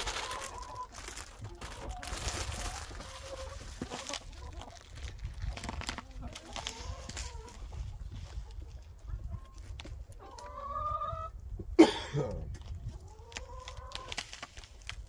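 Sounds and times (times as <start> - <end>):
hens clucking: 0.0 - 14.9.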